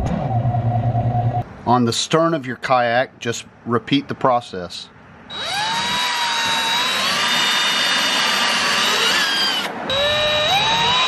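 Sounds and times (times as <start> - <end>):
cordless drill whining: 5.3 - 11.0.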